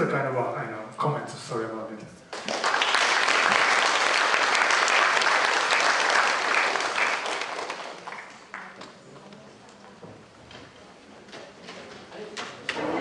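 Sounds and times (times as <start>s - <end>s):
audience applauding: 2.3s - 8.8s.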